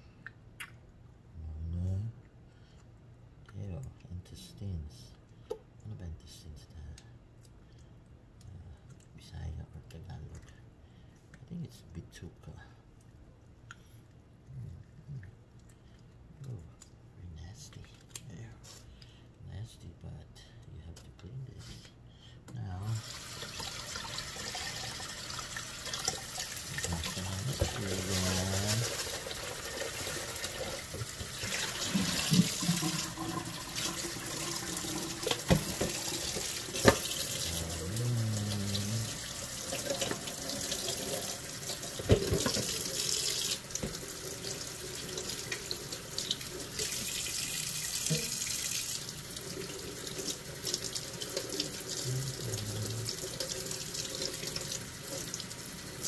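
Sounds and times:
tap running into sink: 0:30.9 - 0:37.2, 0:42.0 - 0:44.0.

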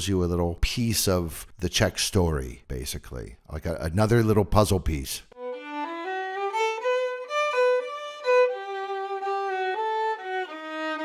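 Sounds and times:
violin melody: 0:05.3 - 0:11.0.

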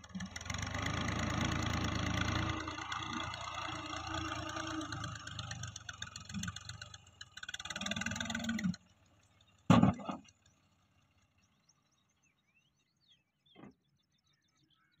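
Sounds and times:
tractor diesel engine running: 0:00.0 - 0:12.4
loud thump: 0:09.7 - 0:10.2
faint bird chirps: 0:11.4 - 0:15.0.

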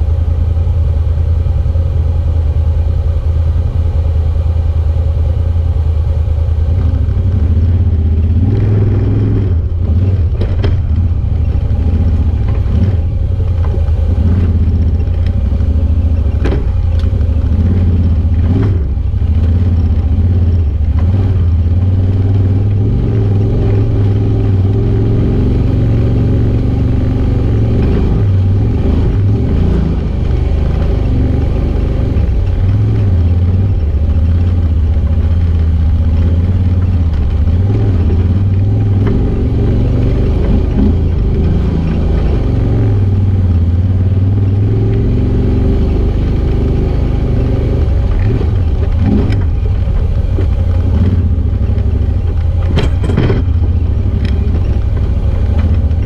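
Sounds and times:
utility vehicle engine running: 0:00.0 - 0:56.0
knocks and clatter over rocks: 0:09.7 - 0:25.0, 0:27.7 - 0:42.7, 0:47.6 - 0:56.0.

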